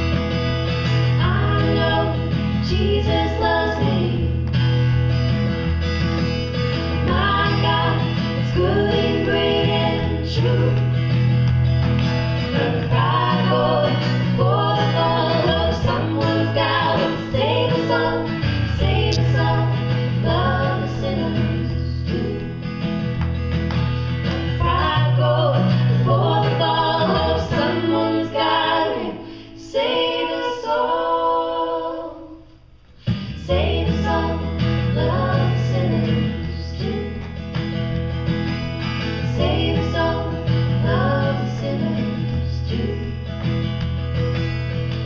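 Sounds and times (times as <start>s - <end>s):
acoustic guitar: 0.0s - 45.0s
women singing in harmony: 1.2s - 4.5s, 6.9s - 11.1s, 12.4s - 22.8s, 24.6s - 32.6s, 33.3s - 37.4s, 39.2s - 43.3s.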